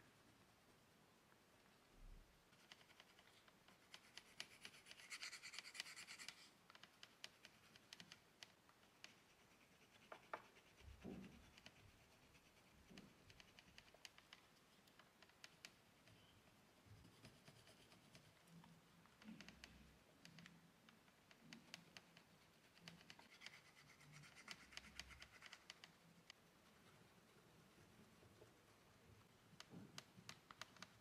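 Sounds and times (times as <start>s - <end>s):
pastel scratching on paper: 2.5s - 14.7s, 15.4s - 18.5s, 21.6s - 28.7s
small scrapes and clicks: 2.5s - 31.0s.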